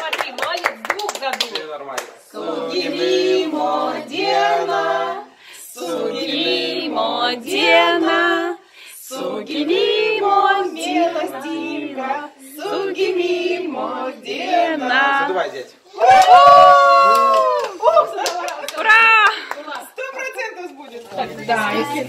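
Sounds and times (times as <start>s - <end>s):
group singing unaccompanied: 2.2s - 15.7s.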